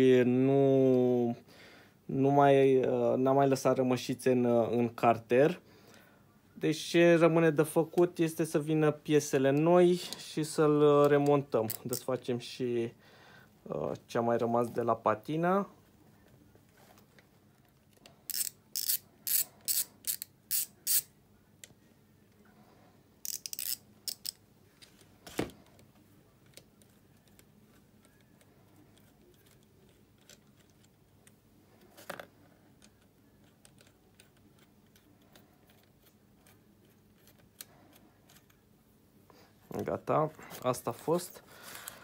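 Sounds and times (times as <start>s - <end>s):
ratchet wrench clicking: 18.3s - 21.1s, 23.2s - 24.4s.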